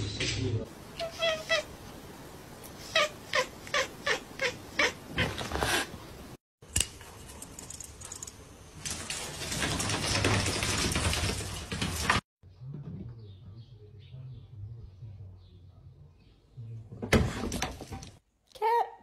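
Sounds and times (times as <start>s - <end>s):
cat mewing: 0.9s - 1.8s, 2.8s - 5.8s.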